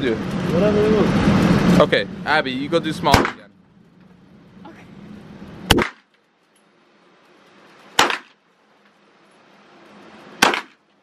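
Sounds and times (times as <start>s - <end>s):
gunshots with short echo: 3.1s - 3.4s, 5.7s - 6.1s, 8.0s - 8.4s, 10.4s - 10.8s.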